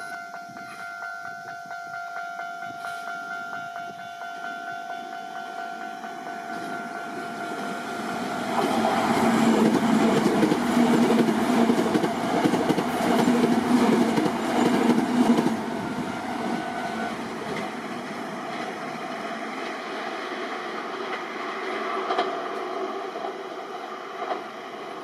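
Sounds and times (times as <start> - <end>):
level crossing warning tone: 0.0 - 19.3
train wheels clattering over rails: 6.5 - 24.6.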